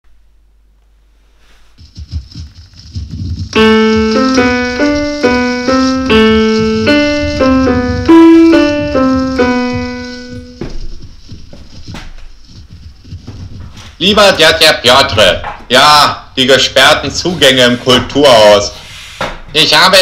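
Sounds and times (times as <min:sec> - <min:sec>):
two-voice keyboard tune: 0:03.6 - 0:10.6.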